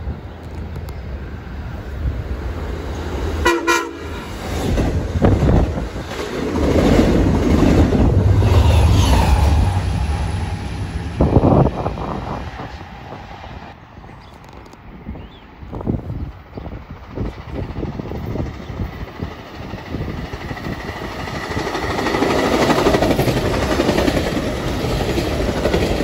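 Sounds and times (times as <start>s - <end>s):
train horn blast: 3.4s - 4.3s
train wheels clattering on rail: 4.1s - 9.8s, 15.7s - 26.0s.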